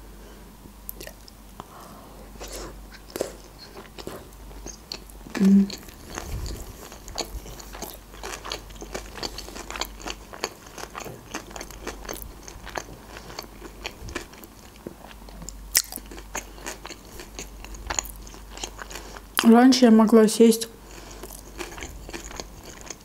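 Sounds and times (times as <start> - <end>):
person chewing food: 0.9 - 19.4, 20.8 - 23.0.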